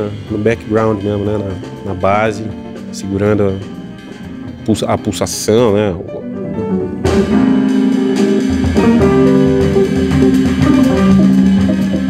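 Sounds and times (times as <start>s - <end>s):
jazz band playing: 0.0s - 12.0s
low bass notes: 0.0s - 12.0s
electric guitar: 6.0s - 12.0s.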